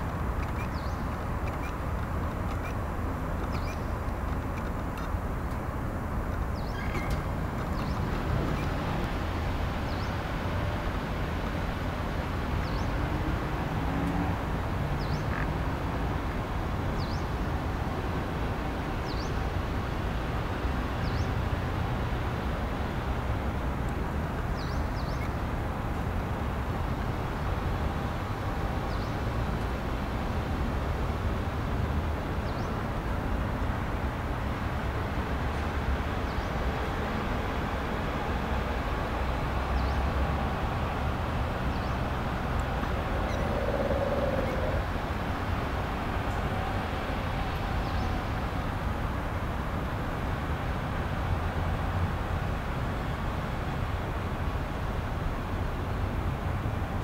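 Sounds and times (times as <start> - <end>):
utility vehicle engine rumbling: 0.0 - 15.2, 37.0 - 50.4.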